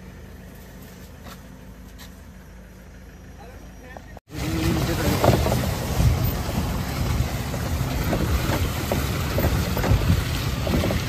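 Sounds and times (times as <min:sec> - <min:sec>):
vehicle engine rumbling: 0:00.0 - 0:11.0
wind noise on microphone: 0:05.1 - 0:11.0.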